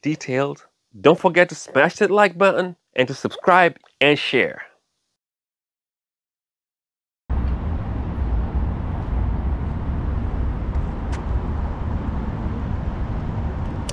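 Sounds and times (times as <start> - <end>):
low rumbling background noise: 7.3 - 13.9.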